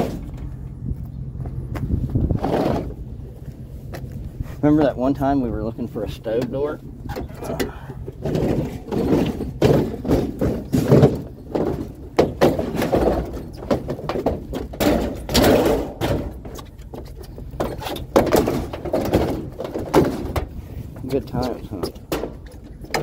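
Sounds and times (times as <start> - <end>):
scrap appliances thudding and clanking: 2.3 - 3.0, 6.4 - 16.9, 17.6 - 23.0.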